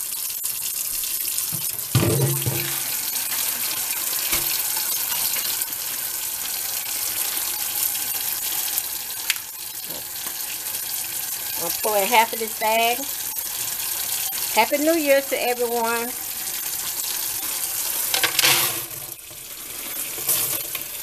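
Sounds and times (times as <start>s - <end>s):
faucet running into metal sink: 0.0s - 21.0s
small knock: 1.6s - 2.8s
plastic colander thump: 1.6s - 2.9s.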